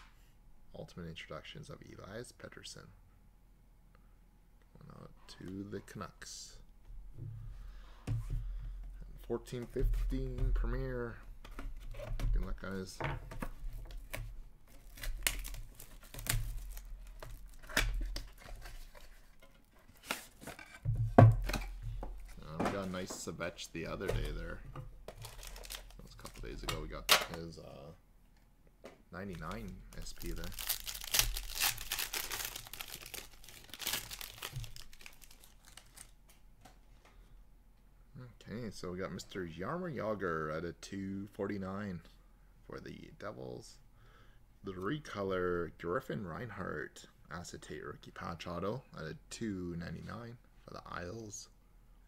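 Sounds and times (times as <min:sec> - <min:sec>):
plastic shrink-wrap tearing: 0:14.8 - 0:18.4, 0:25.2 - 0:26.4, 0:29.4 - 0:36.1.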